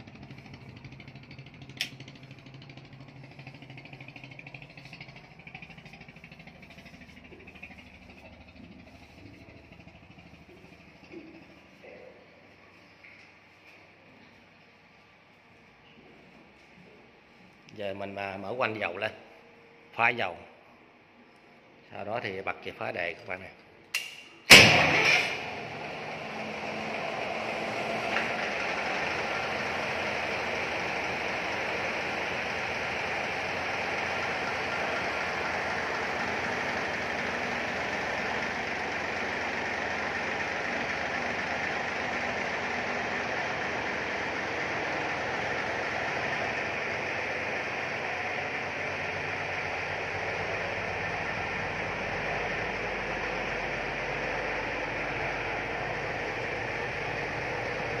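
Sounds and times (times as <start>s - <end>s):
diesel engine starting and running: 0.0s - 20.2s, 20.9s - 58.0s.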